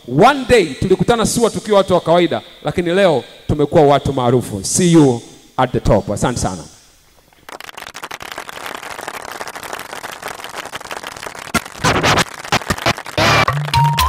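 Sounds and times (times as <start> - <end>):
audience applauding: 7.3 - 14.0.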